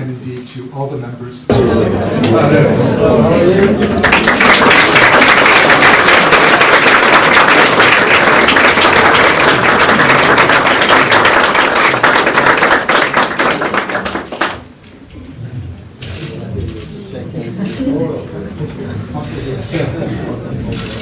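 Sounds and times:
crowd applauding: 2.2 - 14.8.

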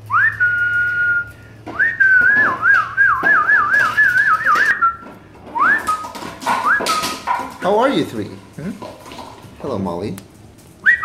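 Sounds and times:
person whistling: 0.1 - 5.0.

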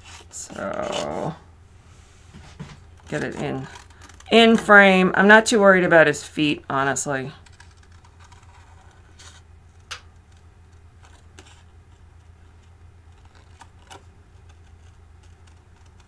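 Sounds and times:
steady low hum: 0.0 - 16.0
scissors snipping cardstock: 13.2 - 16.0.

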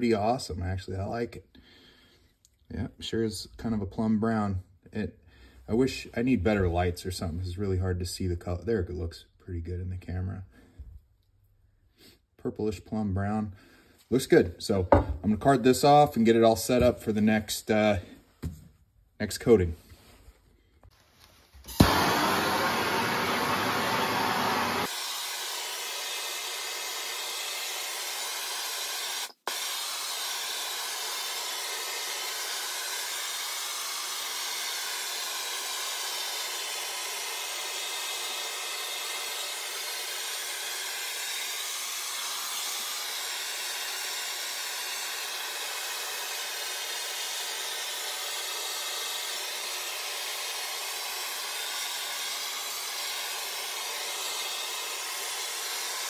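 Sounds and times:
gas torch hissing: 21.6 - 41.2.

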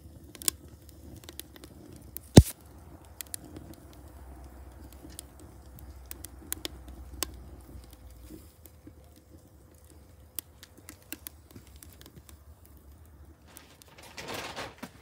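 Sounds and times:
wood fire crackling and popping: 0.0 - 15.0.

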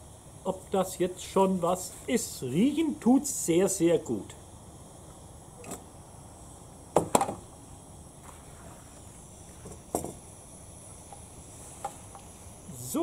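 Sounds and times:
stove knocking on table: 7.0 - 7.4, 9.6 - 10.2.

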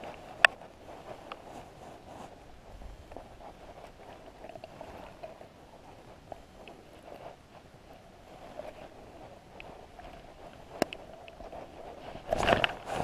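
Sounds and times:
jacket fabric rubbing microphone: 0.0 - 13.0
light clicks and taps: 9.5 - 12.9.

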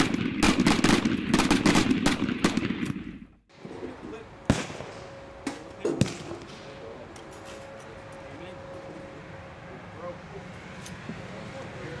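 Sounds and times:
shotguns firing rapidly: 0.0 - 3.1.

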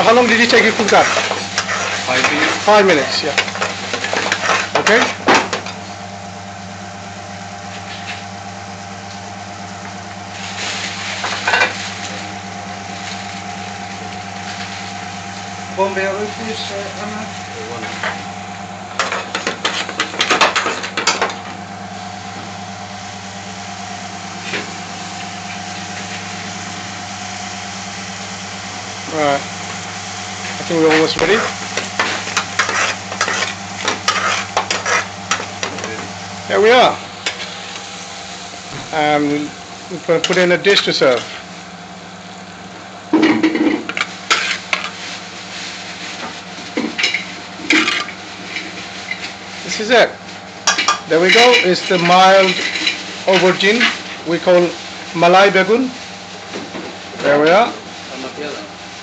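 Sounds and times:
kitchen machinery hum: 0.0 - 59.0
metal spoon scraping a dish: 32.0 - 35.4.

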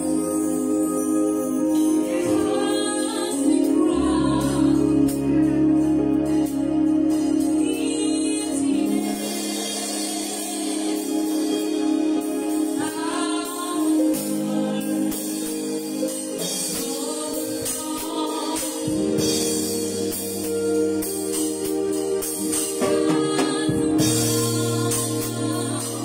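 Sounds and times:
keyboard sustained chords: 0.0 - 26.0
low bass notes: 0.0 - 26.0
woman singing gospel song: 1.8 - 5.7, 7.4 - 19.8, 22.5 - 26.0.

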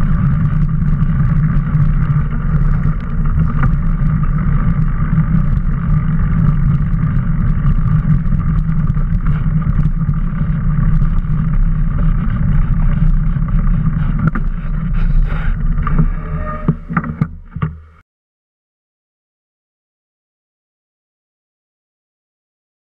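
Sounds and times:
mountain bike rolling on dirt: 0.0 - 18.0
wind noise: 0.0 - 18.0.

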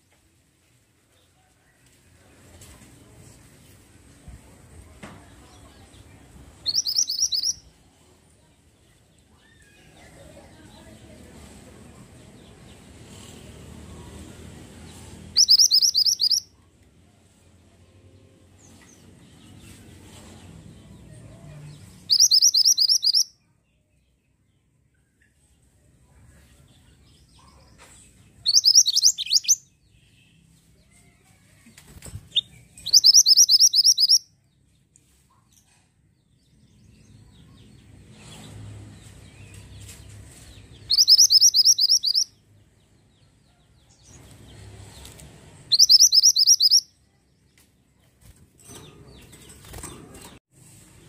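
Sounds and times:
bird high rapid trills: 45.7 - 46.8
wings fluttering: 48.1 - 50.4.

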